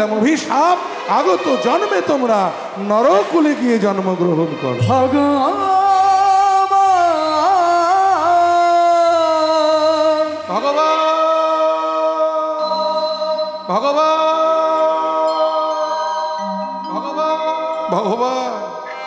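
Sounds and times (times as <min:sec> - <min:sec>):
person singing long held notes: 0:04.8 - 0:19.0.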